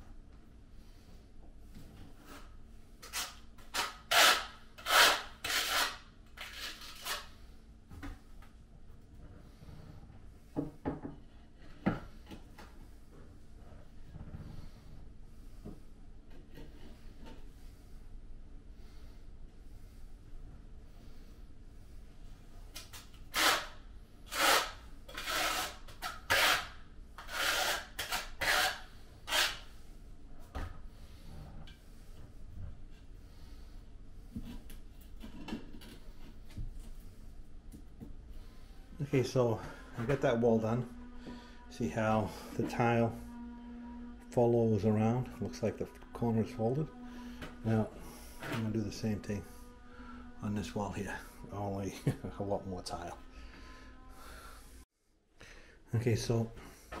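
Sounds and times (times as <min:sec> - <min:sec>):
trowel scraping strokes: 0:02.4 - 0:07.3, 0:23.3 - 0:29.8.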